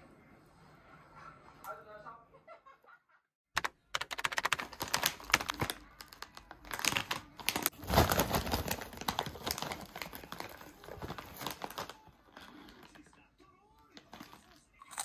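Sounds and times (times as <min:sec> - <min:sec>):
snack bag crinkling: 0:03.6 - 0:15.0.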